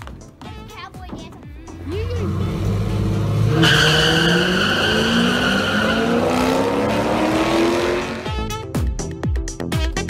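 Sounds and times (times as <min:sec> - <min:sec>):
car engines revving: 0:01.7 - 0:08.5
tire squeal: 0:02.2 - 0:08.2.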